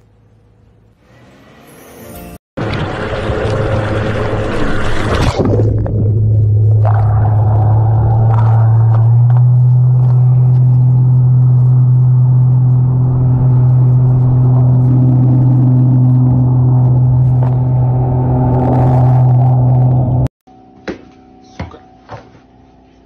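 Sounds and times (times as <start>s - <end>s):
underwater electric motor hum: 2.6s - 20.3s.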